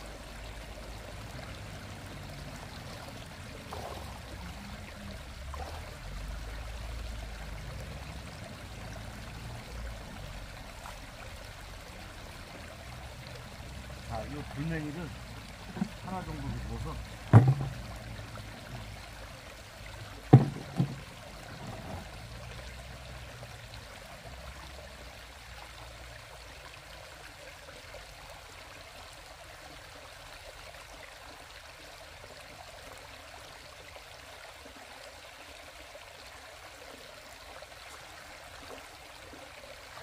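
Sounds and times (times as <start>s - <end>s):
stream running over rocks: 0.0s - 40.0s
sharp knocks: 17.3s - 17.9s, 20.3s - 21.1s.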